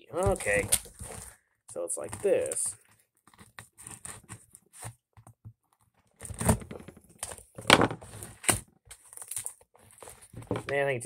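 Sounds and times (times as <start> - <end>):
tape ripping: 6.2 - 10.2.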